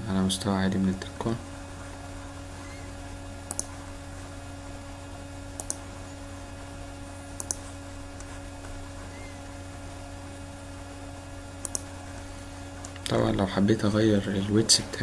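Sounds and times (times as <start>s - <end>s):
steady low hum: 0.0s - 15.0s
mouse button clicks: 3.5s - 3.7s.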